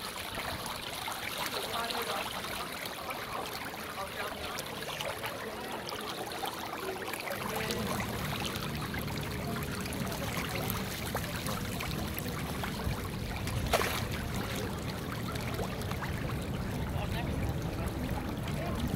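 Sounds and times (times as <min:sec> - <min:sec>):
fish splashing at water surface: 0:00.0 - 0:17.0
steady low rumble: 0:07.4 - 0:18.9.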